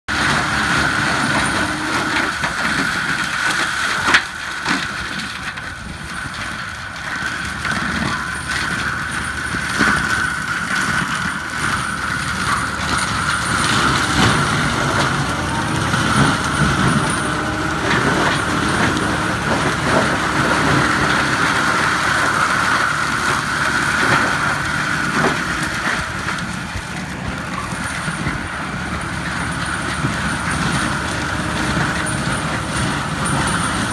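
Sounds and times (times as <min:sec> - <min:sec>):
tractor diesel engine under load: 0:00.0 - 0:33.9
mulcher rotor whine: 0:07.4 - 0:33.9.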